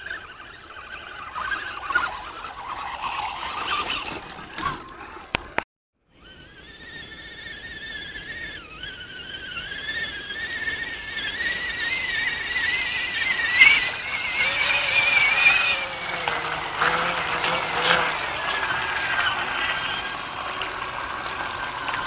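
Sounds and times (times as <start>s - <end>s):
toy truck motor whining: 0.0s - 22.0s
water splashing: 13.3s - 22.0s.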